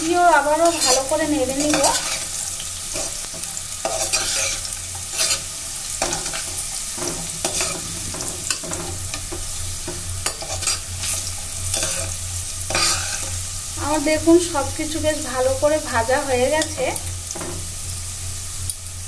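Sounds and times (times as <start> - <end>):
food sizzling in oil: 0.0 - 19.0
spoon scraping pot: 0.6 - 13.4.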